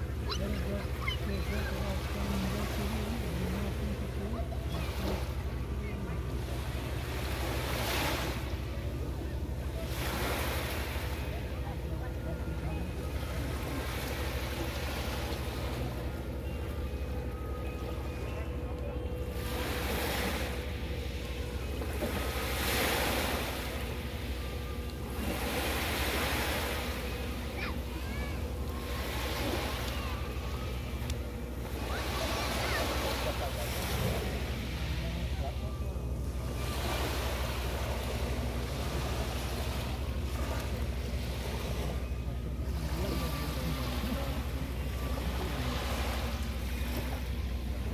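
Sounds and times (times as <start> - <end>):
steady low rumble: 0.0 - 47.9
waves washing up a beach: 0.0 - 47.9.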